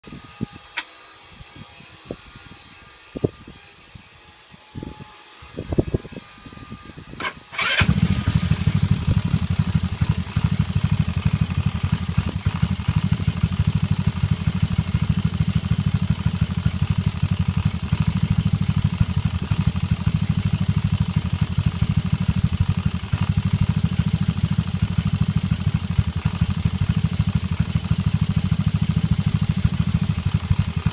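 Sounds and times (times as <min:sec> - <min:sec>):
scooter engine cranking: 0:07.2 - 0:14.1
scooter engine idling: 0:07.6 - 0:30.9.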